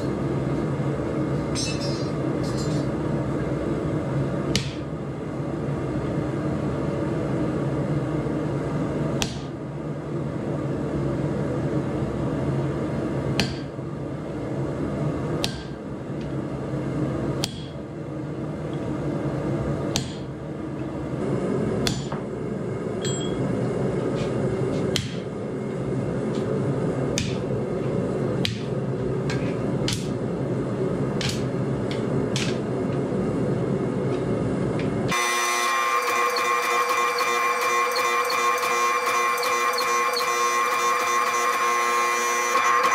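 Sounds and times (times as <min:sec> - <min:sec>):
steady background hum: 0:00.0 - 0:42.9
hammer striking steel on anvil: 0:01.5 - 0:02.8, 0:17.4 - 0:17.8, 0:19.9 - 0:20.3, 0:21.8 - 0:22.2, 0:23.0 - 0:23.4, 0:24.9 - 0:25.3.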